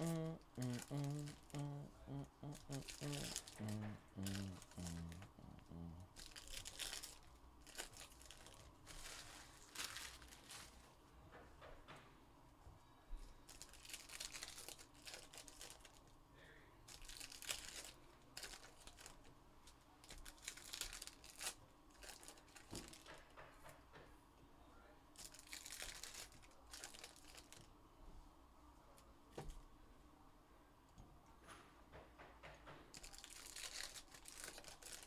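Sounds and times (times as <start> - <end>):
foil wrappers tearing and crinkling: 6.2 - 10.8, 13.5 - 16.0, 16.9 - 19.2, 20.0 - 23.0, 25.2 - 27.7, 32.9 - 35.0.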